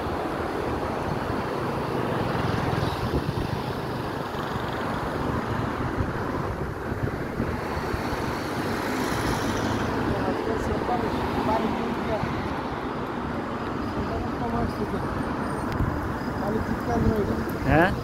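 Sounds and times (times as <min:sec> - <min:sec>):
road traffic: 0:00.0 - 0:18.0
wind buffeting microphone: 0:02.6 - 0:04.2, 0:05.0 - 0:08.9.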